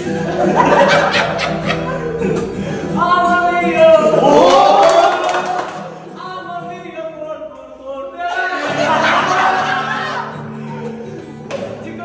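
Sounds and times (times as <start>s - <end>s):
strummed acoustic guitar: 0.0s - 12.0s
men singing together: 8.0s - 10.3s.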